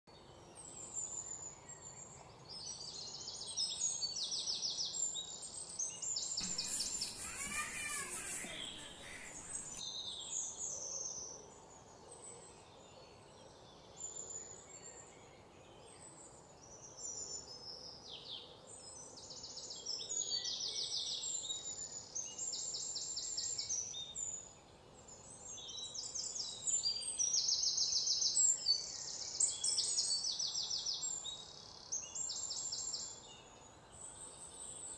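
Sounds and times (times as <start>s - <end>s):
birds chirping and trilling: 6.4s - 9.8s
buzzy bird call: 6.4s - 9.8s.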